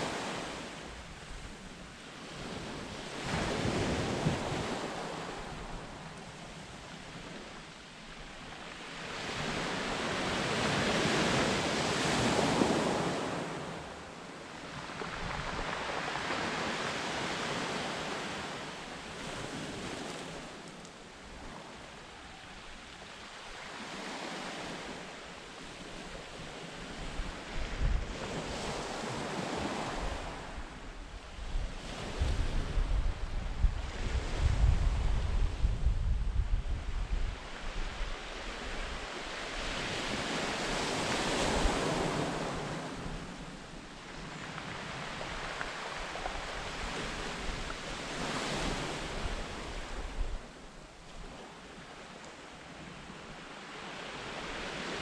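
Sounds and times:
wind rumbling on microphone: 0.0s - 14.0s, 14.6s - 18.6s, 19.2s - 52.0s
waves breaking on shingle shore: 14.7s - 20.6s, 44.0s - 49.7s.

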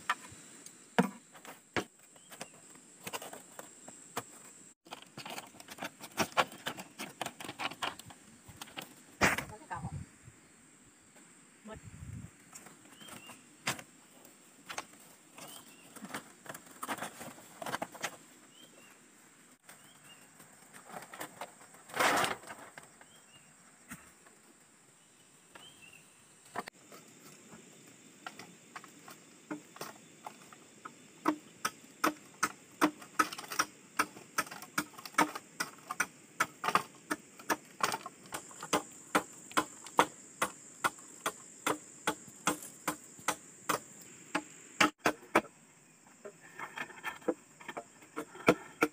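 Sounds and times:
high insect drone: 0.0s - 48.9s
blade chopping bamboo: 31.2s - 45.5s.

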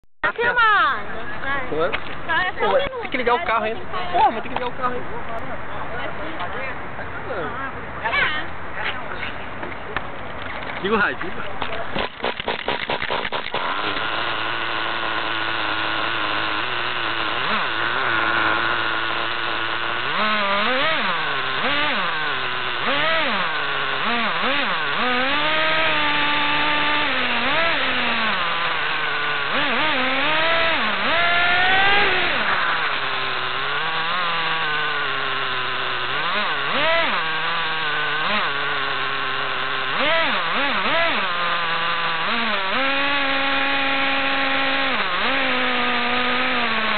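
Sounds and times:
model car engine revving: 11.6s - 46.9s.

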